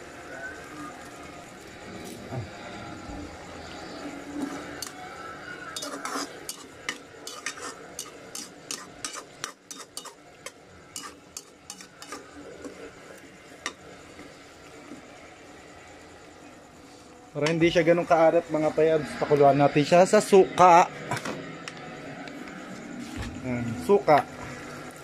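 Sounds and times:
frying sizzle: 0:03.8 - 0:14.6
metal spoon scraping frying pan: 0:05.7 - 0:12.3.

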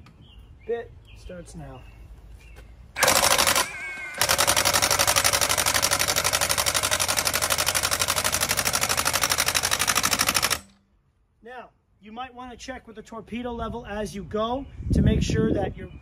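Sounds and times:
impact wrench hammering: 0:03.0 - 0:10.8.

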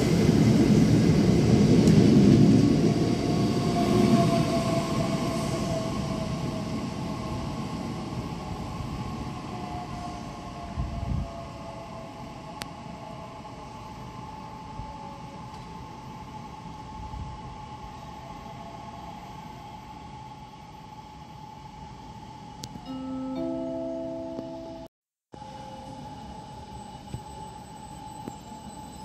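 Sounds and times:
train electric whine and hum: 0:00.0 - 0:29.0
multi-note chime: 0:22.8 - 0:24.9.

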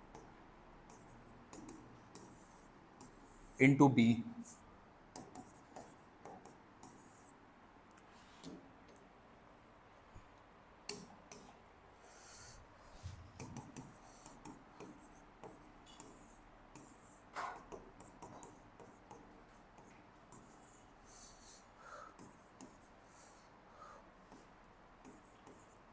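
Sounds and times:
pen scratching on paper: 0:00.9 - 0:03.6, 0:13.4 - 0:19.2, 0:22.2 - 0:23.0, 0:24.3 - 0:25.8.

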